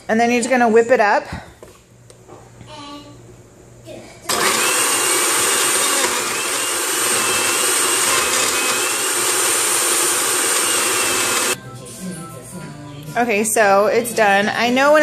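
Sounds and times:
blender crushing ice: 4.3s - 11.6s
blender motor whine: 4.3s - 11.6s.

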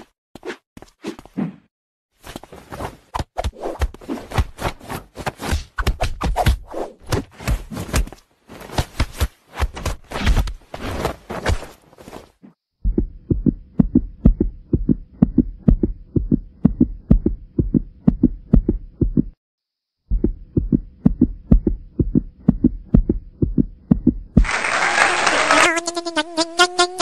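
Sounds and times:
low rhythmic thumps: 12.8s - 19.4s, 20.1s - 24.4s.

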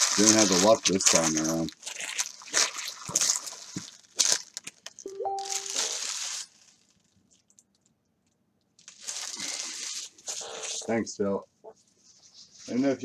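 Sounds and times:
foil wrappers and cards crinkling: 0.0s - 7.9s, 8.8s - 11.0s
short electronic tone: 5.1s - 5.8s.

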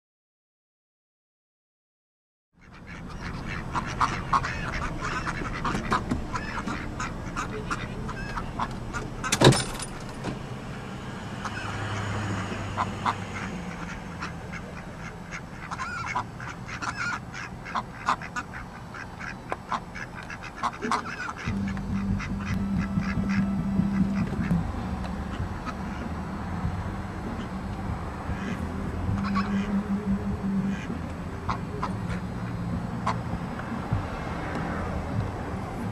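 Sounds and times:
ducks quacking: 2.6s - 35.9s
low rumble: 4.6s - 16.1s, 21.5s - 35.9s.

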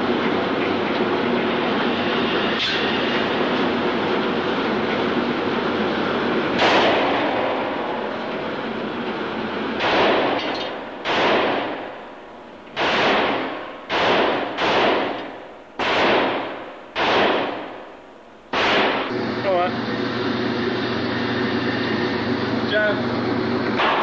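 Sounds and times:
pistol shots echoing indoors: 6.6s - 7.7s, 9.8s - 12.0s, 12.8s - 19.1s, 23.8s - 24.0s.

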